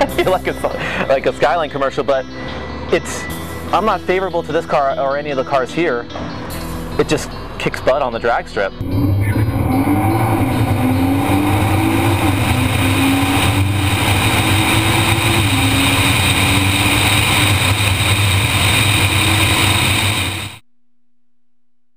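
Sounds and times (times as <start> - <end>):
car engine accelerating hard: 8.8 - 20.6.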